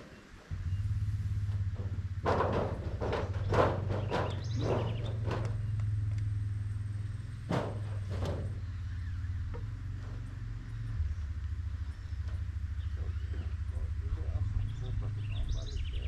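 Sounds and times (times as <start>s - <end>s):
low rumble: 0.5s - 16.0s
construction knocks on timber: 1.6s - 5.8s, 7.4s - 8.6s.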